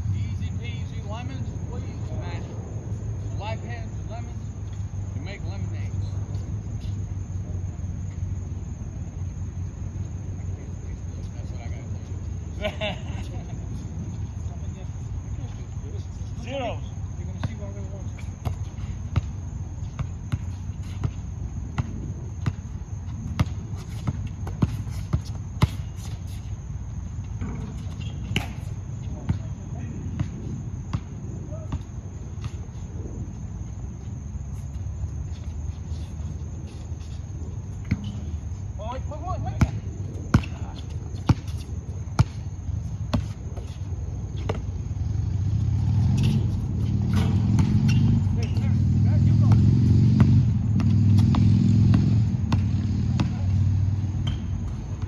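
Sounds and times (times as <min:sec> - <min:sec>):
basketball bouncing on hard court: 0:18.4 - 0:26.0, 0:30.1 - 0:32.6, 0:37.8 - 0:38.2, 0:39.6 - 0:41.6, 0:42.2 - 0:42.5, 0:43.1 - 0:43.7, 0:46.2 - 0:48.7, 0:49.4 - 0:53.6
vehicle engine hum: 0:44.7 - 0:55.0.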